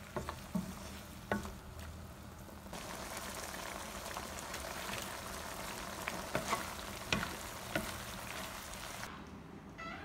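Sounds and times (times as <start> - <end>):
food sizzling in a hot pan: 2.7 - 9.1.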